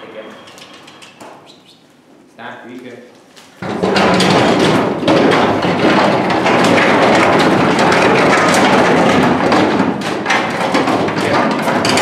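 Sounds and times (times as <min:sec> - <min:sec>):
hooves clattering on metal ramp: 0:03.6 - 0:12.0.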